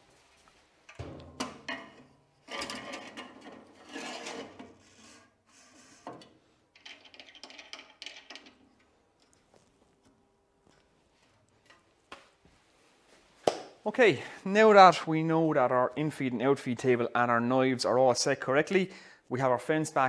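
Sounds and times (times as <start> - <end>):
metal knocks: 0.9 - 2.0
metal clunk: 0.9 - 3.6
metal scraping: 0.9 - 7.6.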